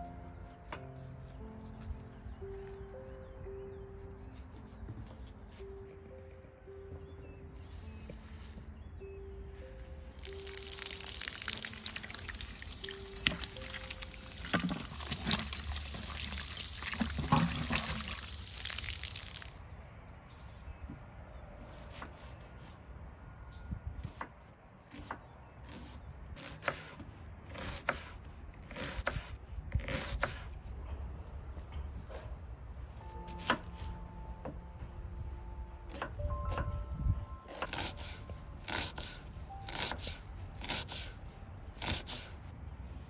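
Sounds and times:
running water splashing: 10.2 - 19.6.

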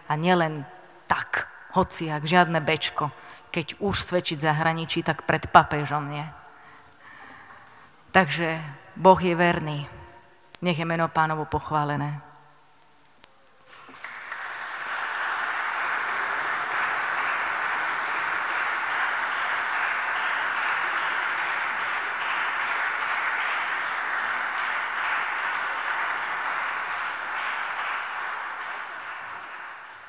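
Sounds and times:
audience applauding: 13.7 - 30.0.

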